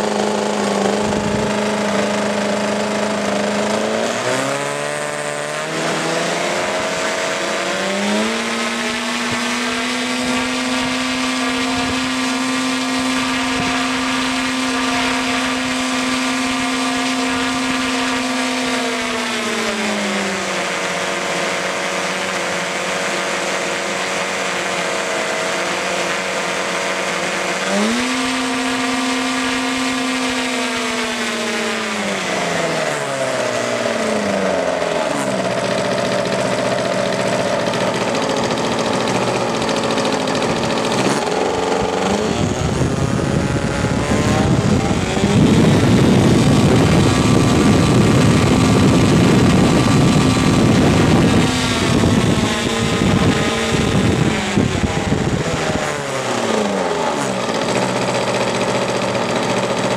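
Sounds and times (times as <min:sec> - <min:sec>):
model aircraft engine running up: 0:00.0 - 0:59.9.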